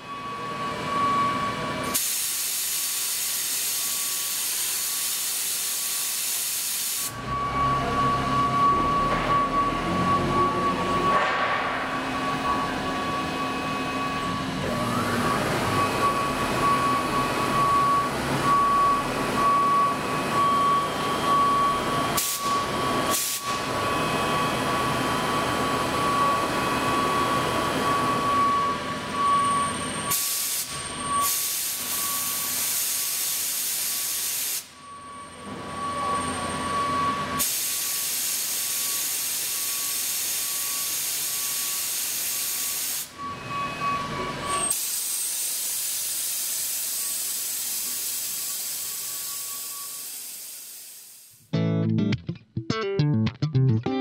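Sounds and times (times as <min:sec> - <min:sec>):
lathe cutting rumble and whine: 0:00.0 - 0:02.2, 0:07.1 - 0:11.2, 0:11.9 - 0:30.2, 0:30.9 - 0:32.6, 0:42.7 - 0:50.4
coolant spray hissing: 0:02.0 - 0:07.1, 0:44.7 - 0:48.8, 0:50.0 - 0:51.3.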